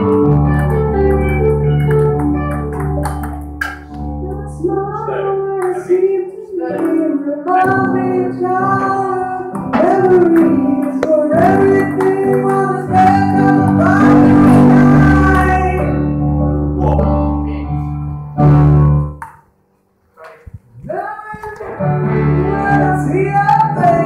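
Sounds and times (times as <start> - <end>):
instrumental backing: 0.0 - 24.0
person singing long notes: 4.0 - 16.0, 20.8 - 24.0.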